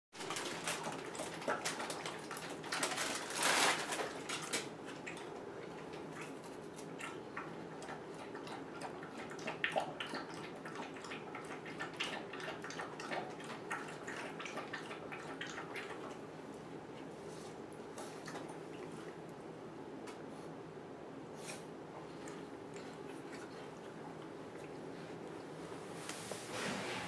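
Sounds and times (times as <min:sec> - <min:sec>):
dog lapping water from bowl: 0:00.3 - 0:02.8, 0:04.2 - 0:16.5, 0:18.0 - 0:19.4, 0:22.0 - 0:25.5.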